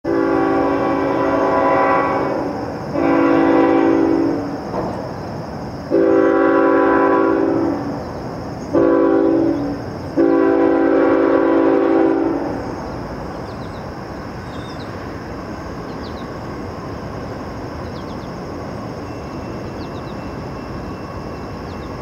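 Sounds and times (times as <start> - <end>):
locomotive air horn blasts: 0.0 - 4.6, 5.9 - 8.0, 8.7 - 12.8.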